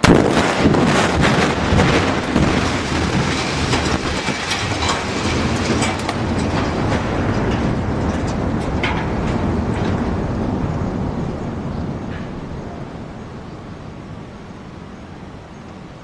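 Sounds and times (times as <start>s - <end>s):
falling debris rattling: 0.0s - 11.3s
building collapsing rumble: 0.0s - 15.8s.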